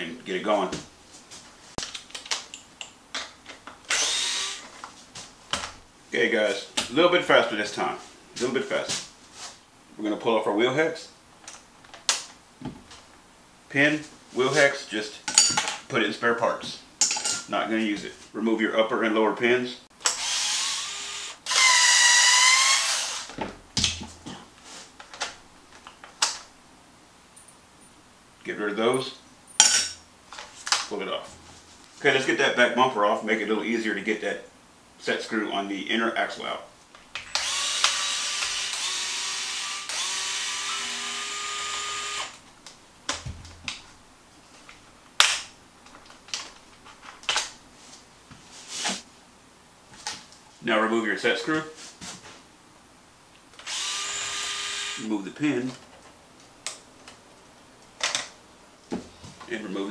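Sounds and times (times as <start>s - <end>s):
cordless screwdriver whining: 3.9s - 4.7s, 20.0s - 23.4s, 37.2s - 42.4s, 53.6s - 55.0s.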